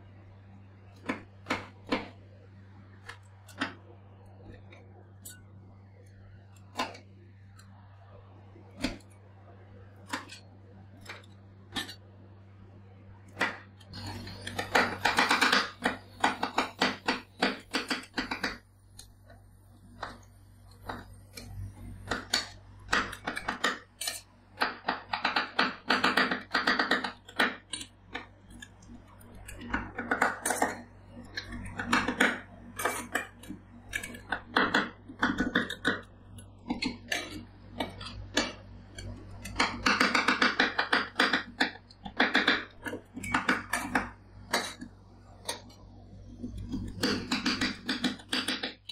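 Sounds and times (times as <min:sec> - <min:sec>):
metal spatulas tapping metal plate: 0:11.1 - 0:12.0.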